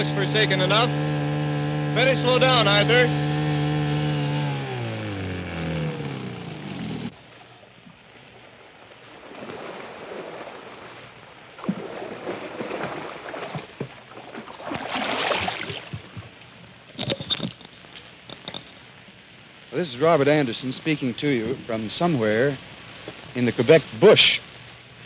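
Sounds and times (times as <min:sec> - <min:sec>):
boat motor slowing down: 0:00.0 - 0:08.0
water lapping and splashing: 0:07.1 - 0:16.9.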